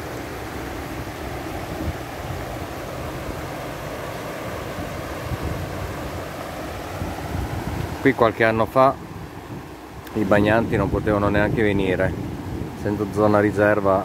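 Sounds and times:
river rushing over stones: 0:00.0 - 0:14.0.

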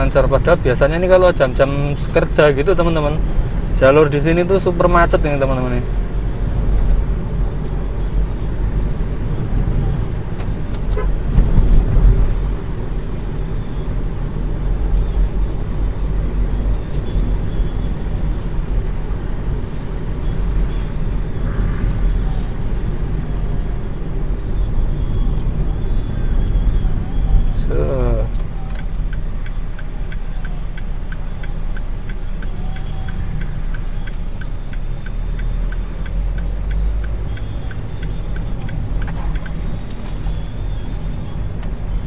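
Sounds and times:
car interior road rumble: 0:00.0 - 0:42.0.

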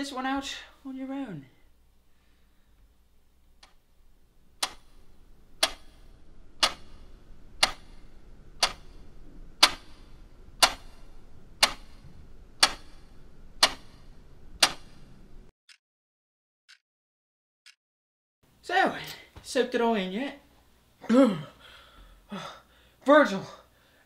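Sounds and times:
low hum: 0:01.6 - 0:15.5
wall clock ticking: 0:03.4 - 0:15.8.

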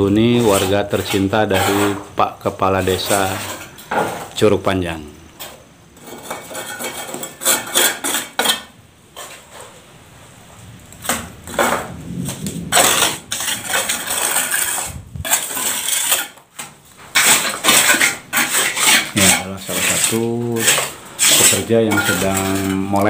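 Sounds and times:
man speaking: 0:00.0 - 0:03.6, 0:04.3 - 0:05.3, 0:19.1 - 0:23.0
trowel scraping mortar board: 0:00.0 - 0:04.4, 0:05.4 - 0:09.8, 0:12.7 - 0:23.0
trowel spreading mortar on wall: 0:00.0 - 0:04.4, 0:05.4 - 0:09.9, 0:12.7 - 0:23.0.

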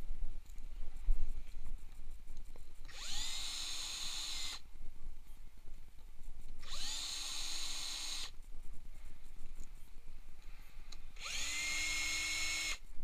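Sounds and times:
cordless drill motor whine: 0:02.9 - 0:04.6, 0:06.6 - 0:08.3, 0:11.2 - 0:12.8.

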